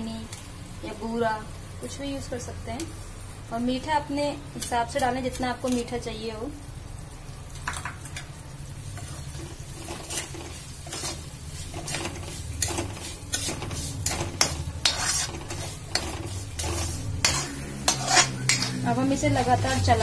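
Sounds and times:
spoon scraping metal pan: 0:08.9 - 0:20.0.

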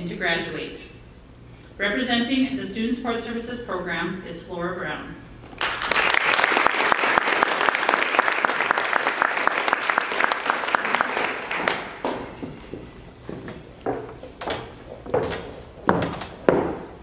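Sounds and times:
audience applauding: 0:05.6 - 0:12.3.

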